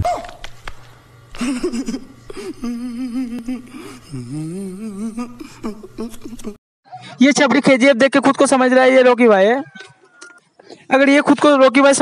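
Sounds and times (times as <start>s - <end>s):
man wailing: 1.4s - 6.6s.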